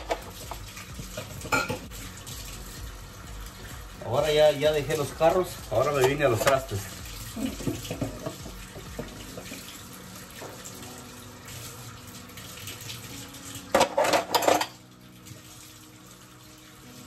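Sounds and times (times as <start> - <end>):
dishes clattering: 0.0 - 1.9, 7.4 - 9.6, 13.7 - 14.8
tap running into steel sink: 0.0 - 1.9, 5.3 - 6.8, 7.6 - 9.6.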